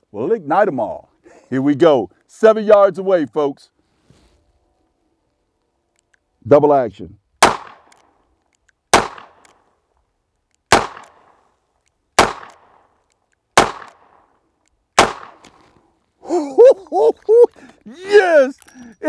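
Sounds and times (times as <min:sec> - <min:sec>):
revolver gunshots: 0:07.4 - 0:08.1, 0:08.9 - 0:09.7, 0:10.7 - 0:11.4, 0:12.2 - 0:14.3, 0:15.0 - 0:15.4.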